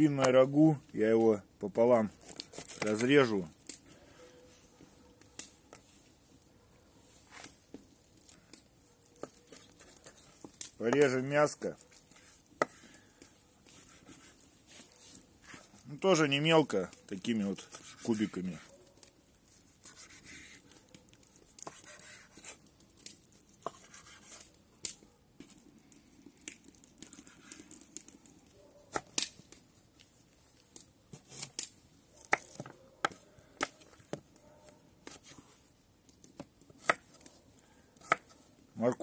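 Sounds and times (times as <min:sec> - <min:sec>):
knife slicing through meat: 0:13.7 - 0:15.7, 0:17.6 - 0:18.6, 0:19.7 - 0:20.6, 0:21.6 - 0:22.6, 0:23.6 - 0:24.5
knife cutting carrot: 0:17.6 - 0:18.7, 0:19.7 - 0:20.6, 0:38.0 - 0:38.4.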